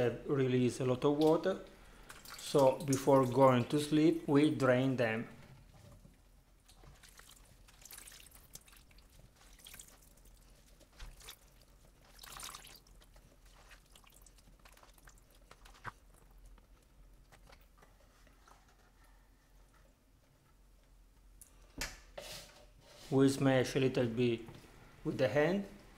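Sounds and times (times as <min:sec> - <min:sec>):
wet squelching and dripping: 0:00.9 - 0:03.8, 0:06.0 - 0:19.0.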